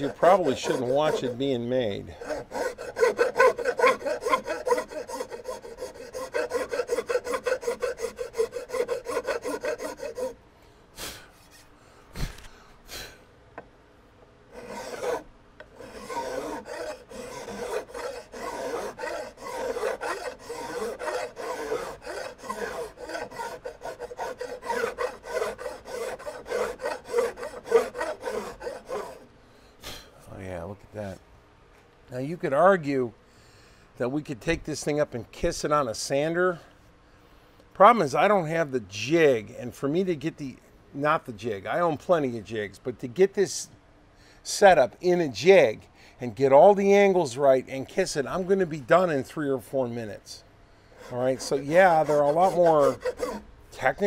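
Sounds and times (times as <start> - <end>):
metal file rasping on wood: 0.0 - 10.4, 14.5 - 29.3, 50.9 - 54.0.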